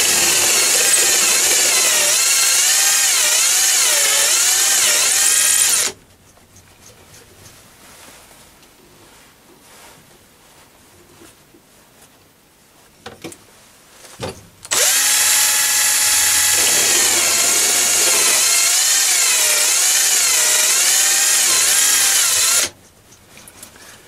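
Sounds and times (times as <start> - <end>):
drill motor whine: 0.0 - 5.9, 14.7 - 22.7.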